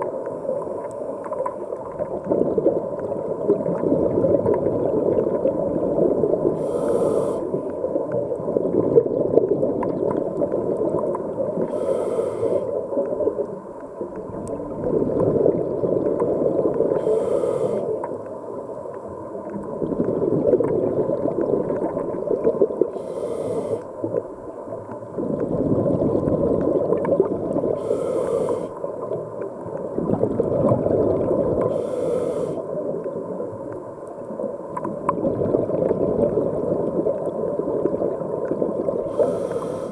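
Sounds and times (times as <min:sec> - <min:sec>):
bubbling exhaled air: 0:02.0 - 0:13.4, 0:14.2 - 0:18.1, 0:19.4 - 0:24.2, 0:25.0 - 0:29.1, 0:29.8 - 0:33.2, 0:34.9 - 0:39.9
regulator inhale hiss: 0:06.5 - 0:07.7, 0:11.6 - 0:12.8, 0:16.8 - 0:18.1, 0:22.9 - 0:24.0, 0:27.7 - 0:29.0, 0:31.6 - 0:32.8, 0:39.0 - 0:39.9.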